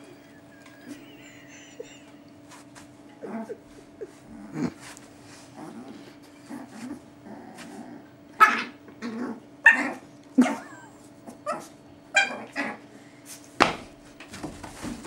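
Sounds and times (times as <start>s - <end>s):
dogs yipping and barking: 9.6s - 12.8s.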